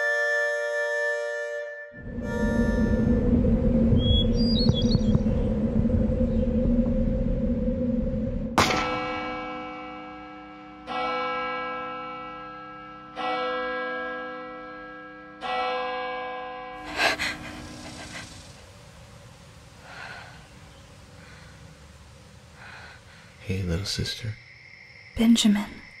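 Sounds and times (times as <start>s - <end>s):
sharp gasping breath: 16.8s - 18.6s, 19.8s - 20.5s, 21.2s - 21.7s, 22.6s - 23.4s.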